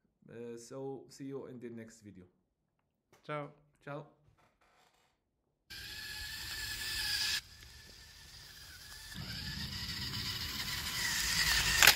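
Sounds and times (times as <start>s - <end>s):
small gear motors whining: 5.7s - 11.9s.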